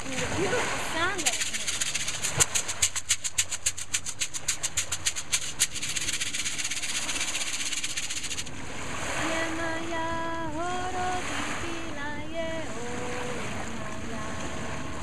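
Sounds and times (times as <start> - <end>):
shekere bead rattles: 1.1 - 8.5.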